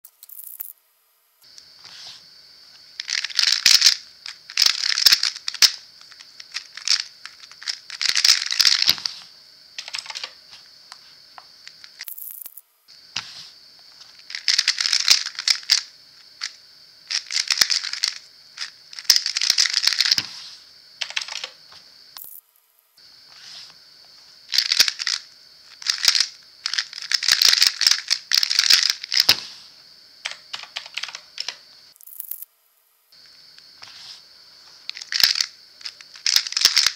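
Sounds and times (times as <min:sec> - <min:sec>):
plastic puzzle clicking and rattling: 0:03.0 - 0:09.2, 0:09.8 - 0:10.6, 0:14.0 - 0:20.3, 0:21.0 - 0:21.6, 0:24.5 - 0:29.4, 0:30.3 - 0:32.4, 0:34.8 - 0:36.9.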